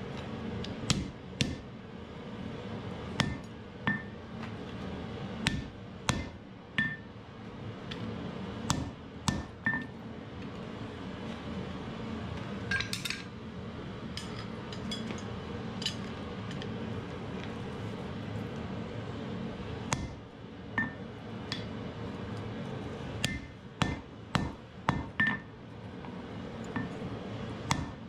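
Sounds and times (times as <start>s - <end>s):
hammer striking hot iron: 0.7s - 1.7s, 3.1s - 4.2s, 5.4s - 7.1s, 8.7s - 9.9s, 19.9s - 20.2s, 20.8s - 21.8s, 23.2s - 25.5s, 26.7s - 27.0s, 27.6s - 28.0s.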